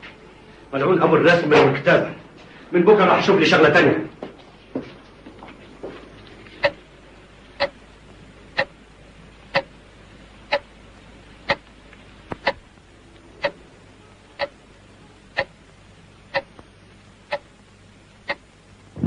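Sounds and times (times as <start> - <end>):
clock ticking: 8.6 - 8.8, 9.5 - 9.7, 10.5 - 10.7, 12.4 - 12.6, 14.4 - 14.6, 15.4 - 15.6, 16.3 - 16.6, 17.3 - 17.5, 18.2 - 18.4.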